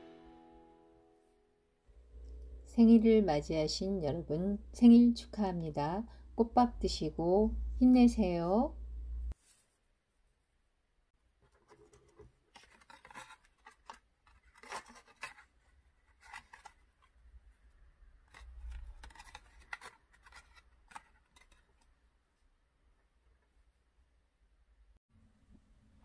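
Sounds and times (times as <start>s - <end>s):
ribbon and paper rustling: 11.6s - 17.2s, 18.3s - 21.9s.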